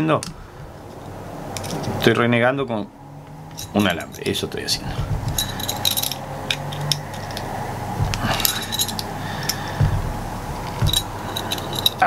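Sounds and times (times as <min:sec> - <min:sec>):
small metallic clicks and clinks: 0:01.6 - 0:02.2, 0:03.2 - 0:04.4, 0:05.3 - 0:09.6, 0:10.6 - 0:12.0
dull handling bumps: 0:03.2 - 0:12.0
pliers twisting steel wire: 0:03.2 - 0:12.0.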